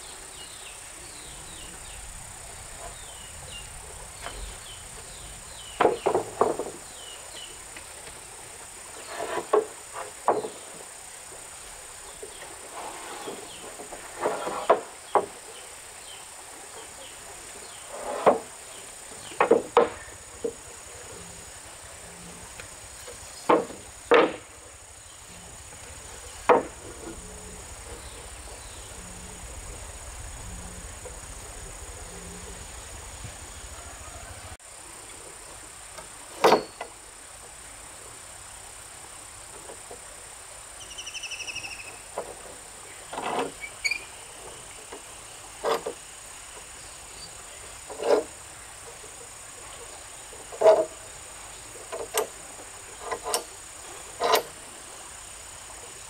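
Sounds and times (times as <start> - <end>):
insects buzzing: 0.0 - 56.0
loud short knocks: 23.5 - 24.5, 26.4 - 26.9
faint bird chirps: 40.8 - 42.1.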